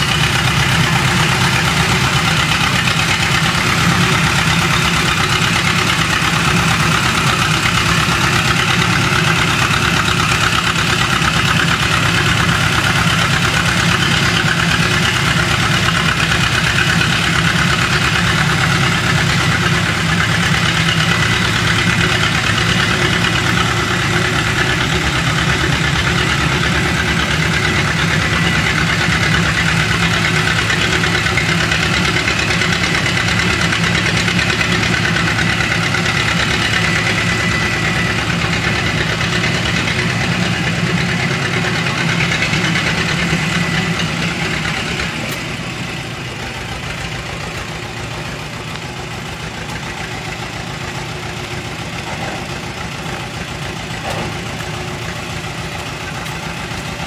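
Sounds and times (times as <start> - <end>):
tractor diesel engine pulsing: 0.0 - 57.0.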